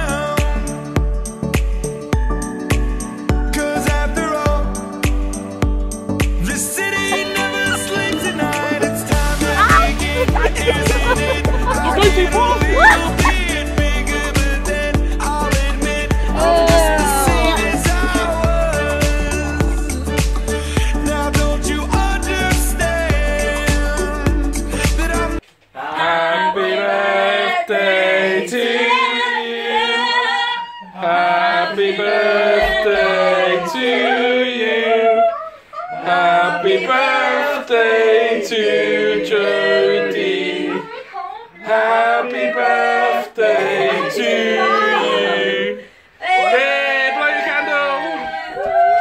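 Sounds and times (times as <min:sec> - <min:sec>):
background music: 0:00.0 - 0:25.4
group singing unaccompanied: 0:06.4 - 0:20.1, 0:25.8 - 0:48.6.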